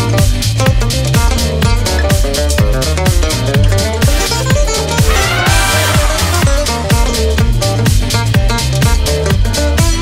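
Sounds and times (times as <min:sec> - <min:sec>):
electronic dance music: 0:05.1 - 0:07.0.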